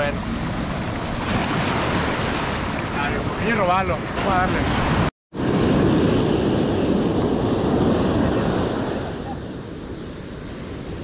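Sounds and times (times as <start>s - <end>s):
surf washing on beach: 0.0s - 11.0s
wind buffeting microphone: 0.0s - 11.0s.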